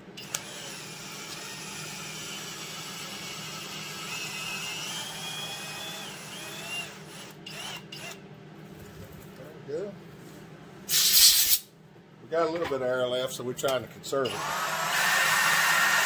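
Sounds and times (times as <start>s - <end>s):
cordless drill grinding metal: 0.2s - 8.2s, 14.2s - 16.0s.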